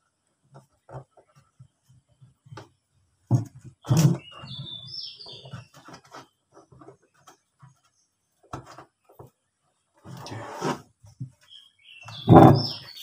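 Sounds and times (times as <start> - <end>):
bird chirping: 3.8 - 6.4, 11.4 - 13.0
handling knocks and rubbing: 10.0 - 13.0.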